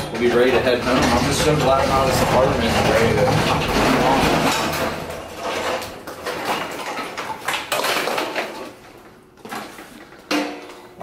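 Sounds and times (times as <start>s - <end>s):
metal hand cart clattering: 0.0s - 8.7s.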